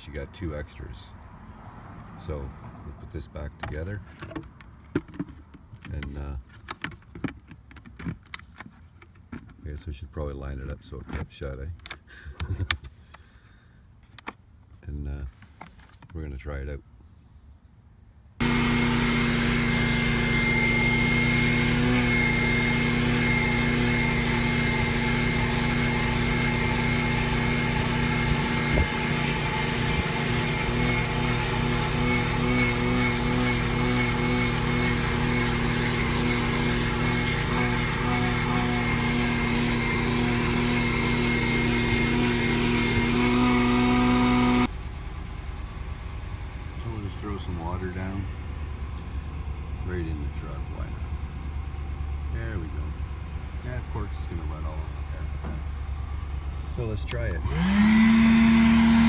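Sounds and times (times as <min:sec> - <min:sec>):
vacuum cleaner running: 0:18.4 - 0:44.7, 0:57.1 - 0:59.0.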